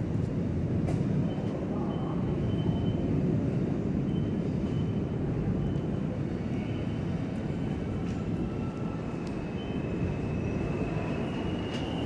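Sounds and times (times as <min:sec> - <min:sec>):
subway train rumble: 0:00.0 - 0:12.0
high wheel squeal: 0:08.5 - 0:12.0.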